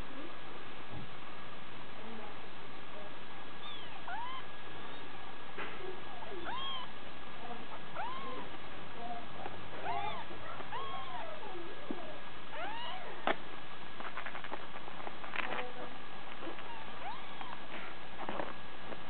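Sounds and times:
kittens mewing: 3.6s - 5.1s, 6.1s - 7.0s, 7.7s - 13.4s, 16.4s - 17.9s.

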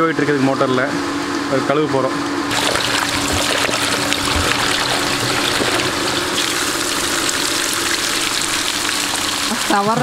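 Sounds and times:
water poured onto ground: 2.5s - 9.8s
hose water splashing into bowl: 2.5s - 10.0s.

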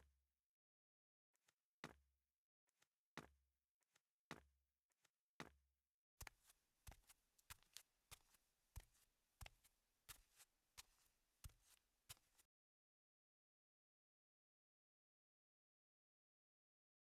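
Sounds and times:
footsteps on carpet: 6.2s - 12.5s.

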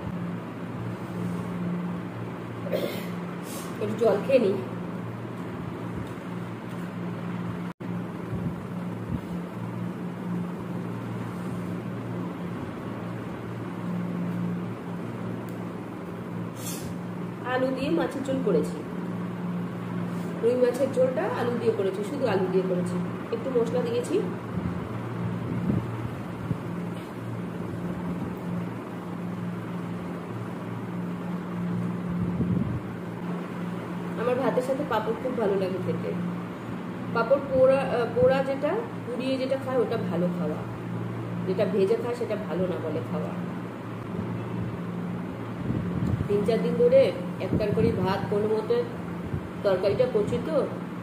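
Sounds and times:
low mechanical hum: 0.0s - 51.0s
motor humming with hiss: 8.0s - 22.0s
even hiss: 16.5s - 17.0s.

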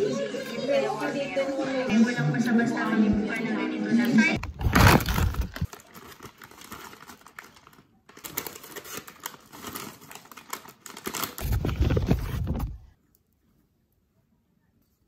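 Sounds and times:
paper bag and plastic rustling: 4.4s - 12.9s.

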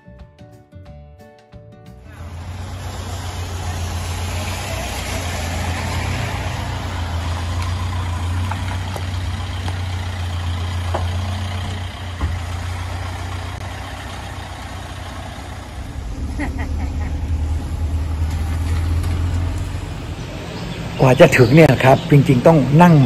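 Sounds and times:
truck engine idling: 2.1s - 22.8s
rain on a wet road: 2.7s - 15.5s.

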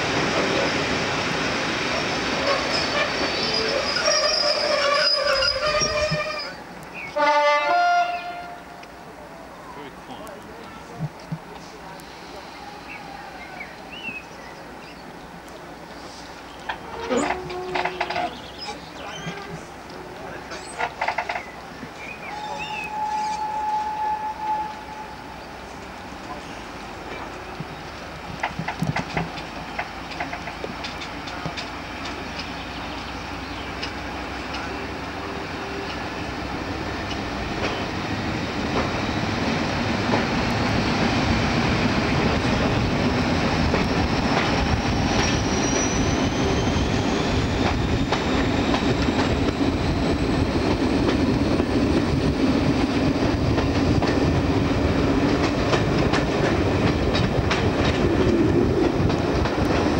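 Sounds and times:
diesel locomotive working hard: 15.3s - 59.9s
wheels clicking over rail joints: 16.6s - 21.9s, 27.1s - 34.8s, 53.2s - 59.9s.

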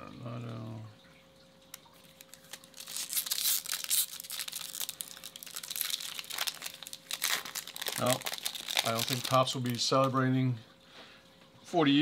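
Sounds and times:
foil wrapper crinkling and tearing: 2.0s - 10.2s.

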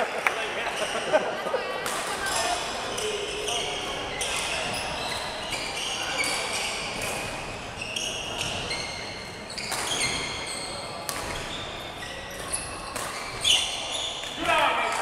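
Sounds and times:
shoes squeaking on wooden floor: 4.1s - 14.2s
racket hitting shuttlecock: 11.1s - 11.5s, 12.3s - 13.6s.

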